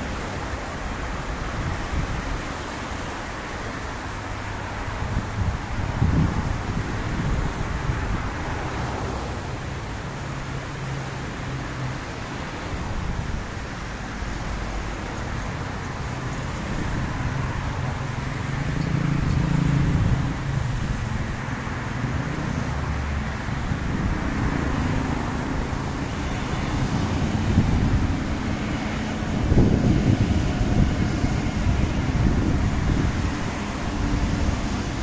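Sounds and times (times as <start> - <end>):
metro train passing: 0.0 - 35.0
traffic on wet road: 0.0 - 35.0.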